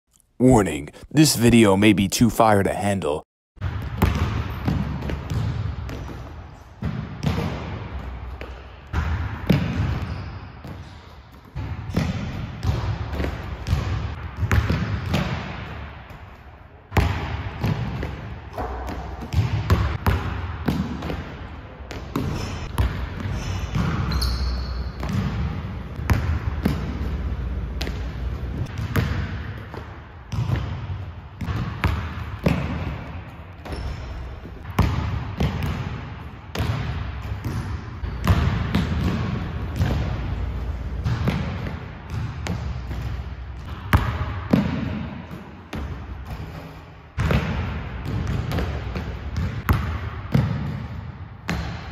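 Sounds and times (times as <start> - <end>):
basketball bouncing on hardwood floor: 3.6 - 6.2, 17.0 - 21.3, 28.7 - 33.0, 34.6 - 36.0, 47.2 - 50.9.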